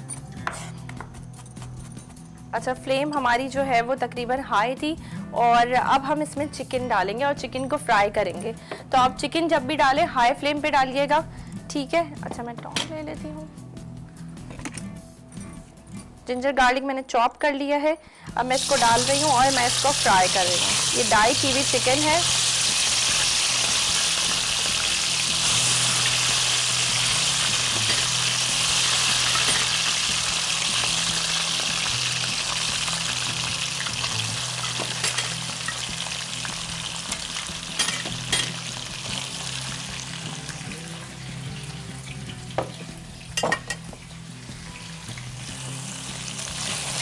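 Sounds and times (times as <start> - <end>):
chicken frying in hot oil: 18.6 - 42.4, 44.6 - 47.0
metal tongs clinking: 27.8 - 28.2, 29.2 - 29.9, 34.6 - 35.8, 37.7 - 38.6.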